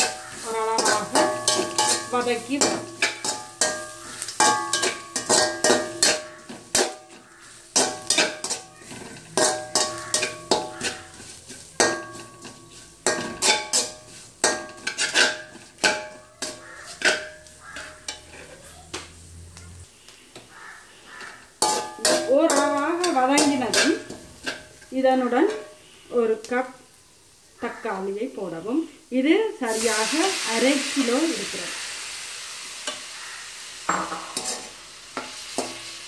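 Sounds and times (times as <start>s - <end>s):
spatula scraping metal pan: 0.0s - 18.9s, 21.0s - 25.8s, 32.9s - 36.0s.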